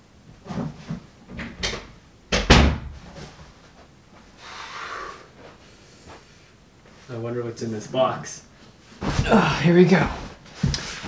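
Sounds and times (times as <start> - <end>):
door knocks and bumps: 1.4 - 3.0.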